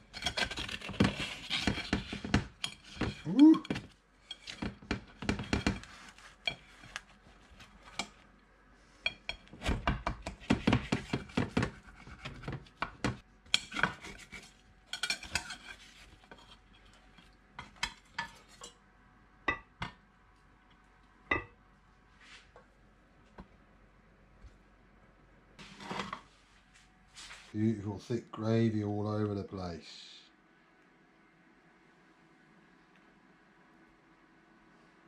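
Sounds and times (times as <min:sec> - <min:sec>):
cutlery scraping baking dish: 0:00.0 - 0:07.0, 0:10.2 - 0:12.7, 0:13.5 - 0:18.8.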